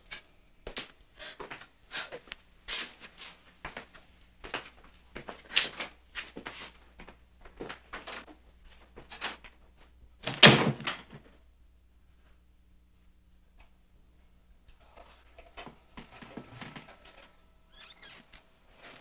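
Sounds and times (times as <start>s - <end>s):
shuffling footsteps: 0.7s - 10.1s.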